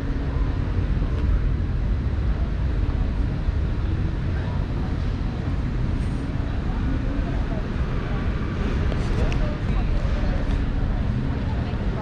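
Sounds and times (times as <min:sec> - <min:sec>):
faint crowd chatter: 0:00.0 - 0:12.0
steady low rumble: 0:00.0 - 0:12.0.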